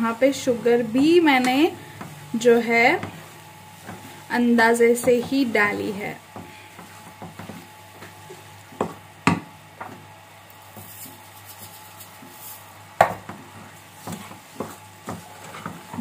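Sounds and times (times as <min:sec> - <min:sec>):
faint sizzle: 0:00.0 - 0:16.0
wooden spoon stirring in metal pan: 0:00.0 - 0:16.0
spoon knocking against pan: 0:08.8 - 0:10.0
sugar pouring with soft hiss: 0:10.5 - 0:12.8.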